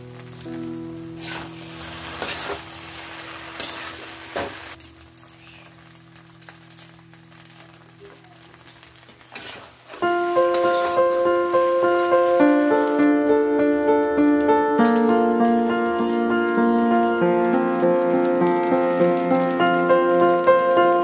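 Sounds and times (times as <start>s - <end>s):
faint music tones: 0.0s - 21.0s
pasta sizzling in a frying pan: 0.0s - 21.0s
spatula scraping a pan: 1.2s - 2.7s, 3.5s - 4.5s, 9.3s - 11.1s.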